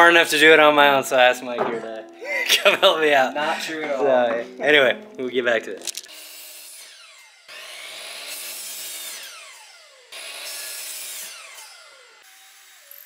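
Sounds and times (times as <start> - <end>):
saw blade cutting wood: 6.1 - 13.0
saw motor whine coasting down: 6.4 - 10.5.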